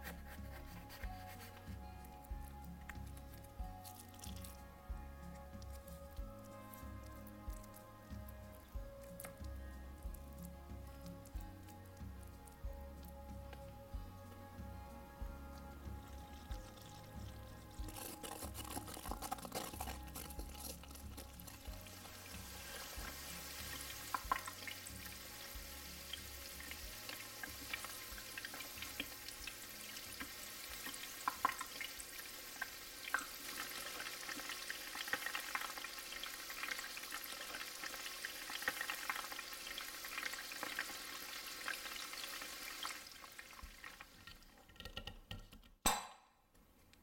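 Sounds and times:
food sizzling in hot oil: 15.0s - 44.6s.

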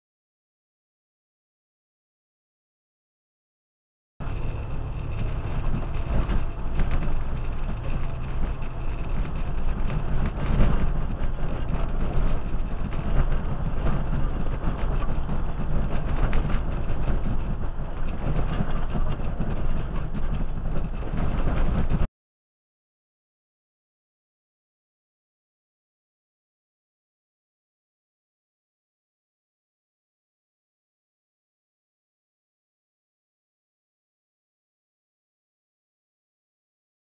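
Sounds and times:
rocks knocking and body rattling: 4.2s - 22.1s
vehicle engine and tyres rumbling: 4.2s - 22.1s.

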